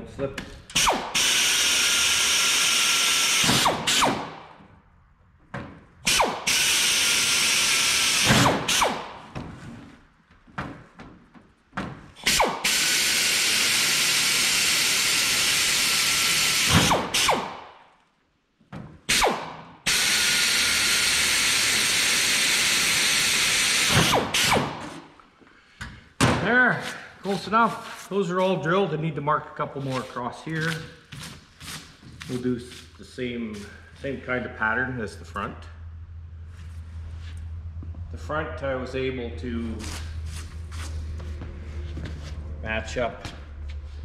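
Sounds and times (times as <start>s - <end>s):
pneumatic air drill: 0.7s - 4.4s, 6.0s - 9.3s, 12.2s - 17.6s, 19.1s - 25.1s.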